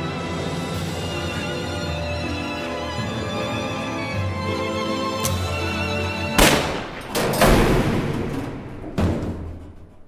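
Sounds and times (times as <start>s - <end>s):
orchestral strings sustained chords: 0.0s - 6.4s.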